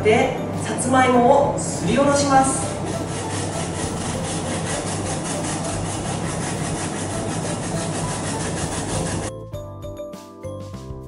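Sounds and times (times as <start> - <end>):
sweet potato rasping on grater: 2.6 - 9.3.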